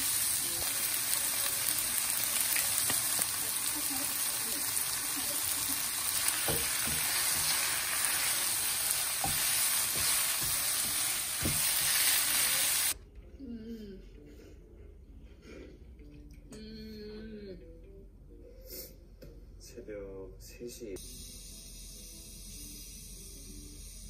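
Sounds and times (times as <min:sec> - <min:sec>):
food sizzling in a wok: 0:00.0 - 0:13.0.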